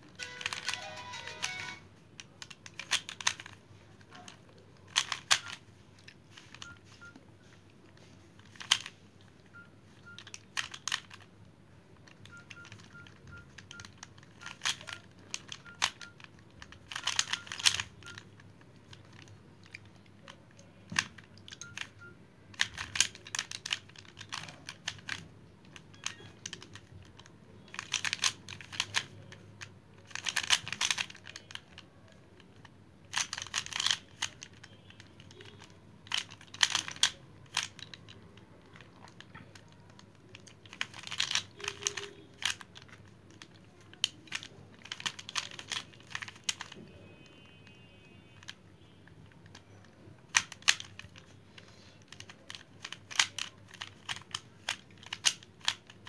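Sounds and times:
puzzle cube clicking: 0.1s - 6.7s, 8.4s - 9.0s, 10.2s - 11.3s, 12.0s - 46.8s, 49.5s - 56.0s.

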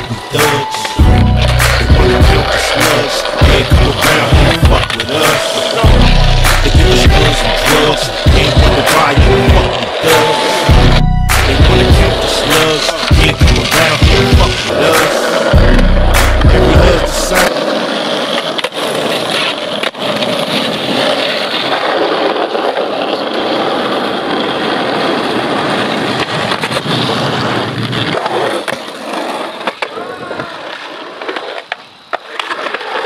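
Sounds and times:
skateboard wheels rolling on asphalt: 0.0s - 33.0s.

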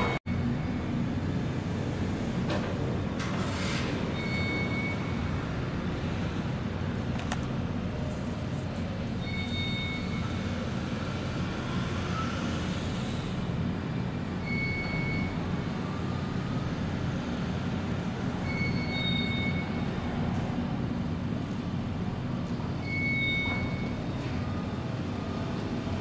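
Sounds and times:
low engine rumble: 0.0s - 26.0s
short electronic beep: 4.2s - 5.2s, 9.2s - 10.4s, 22.8s - 24.0s.

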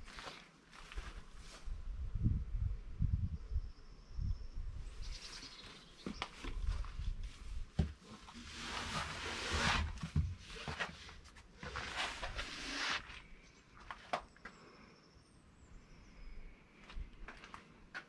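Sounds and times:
wind gusts on microphone: 1.6s - 5.3s.

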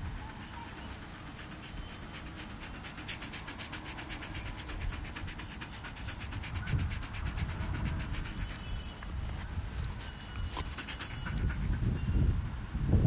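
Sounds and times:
dog panting: 0.0s - 12.3s
low rumble: 1.3s - 10.0s.

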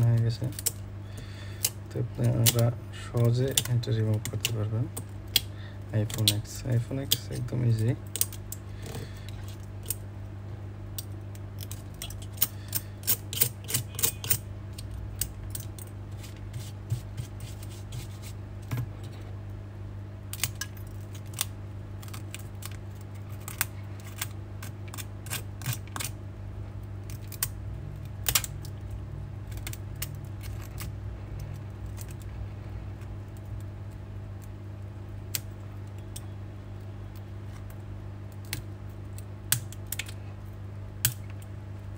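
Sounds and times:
steady low hum: 0.0s - 41.9s
metal blade scraping glass: 13.0s - 14.4s.

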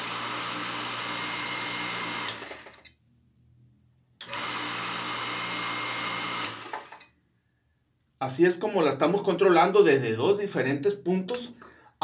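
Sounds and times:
electric water pump humming: 0.0s - 2.7s, 4.2s - 6.9s.

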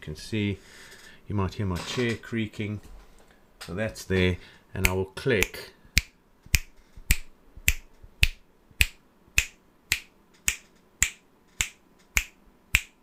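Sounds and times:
finger snaps: 4.8s - 13.0s.

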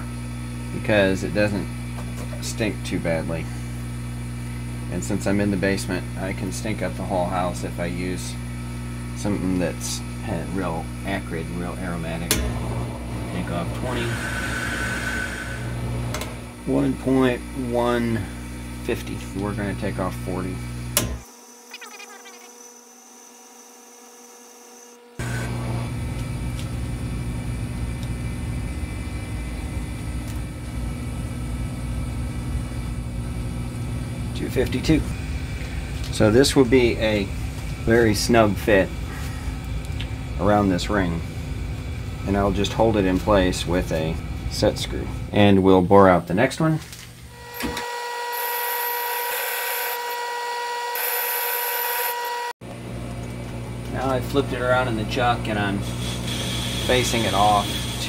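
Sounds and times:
lathe whine: 0.0s - 45.5s, 47.2s - 58.0s
low rumble and hum: 8.0s - 21.2s, 25.6s - 46.0s
high hiss of boring tool: 13.3s - 18.6s, 47.4s - 52.5s, 55.6s - 58.0s.

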